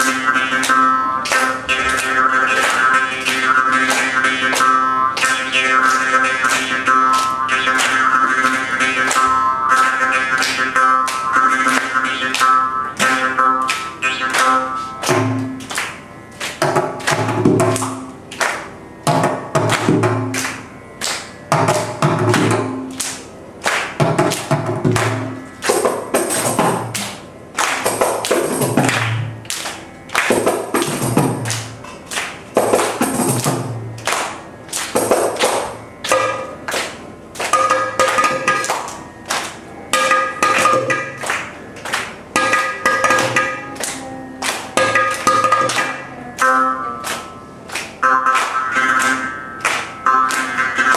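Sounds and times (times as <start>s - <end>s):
hand drums playing rhythm: 0.0s - 20.7s, 21.4s - 50.9s
twanging jaw harp: 0.0s - 50.9s.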